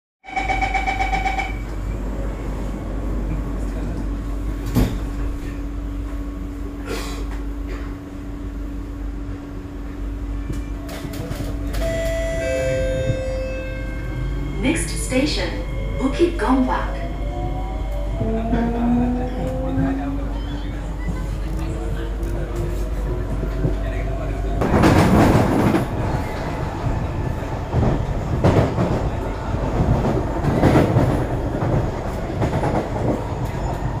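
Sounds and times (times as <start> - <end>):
train doors shutting: 0.3 - 8.4, 10.2 - 34.0
train carriage rumble: 0.3 - 34.0.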